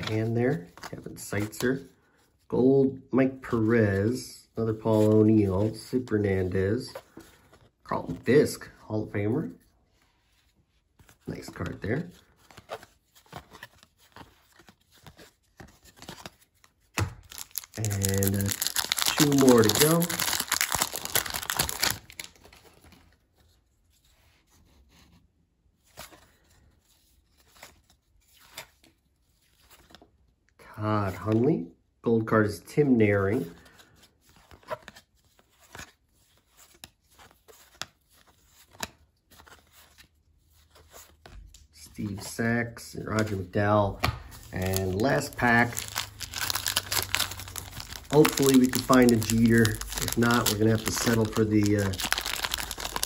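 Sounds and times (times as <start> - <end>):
paper cards rustling and tapping: 11.0 - 23.1, 43.1 - 53.0
faint paper rustling: 43.0 - 53.0.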